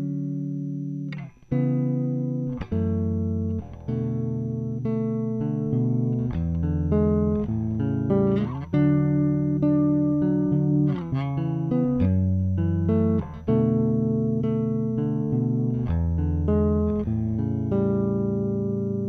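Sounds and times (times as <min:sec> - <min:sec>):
electric bass playing held notes: 0:00.0 - 0:19.0.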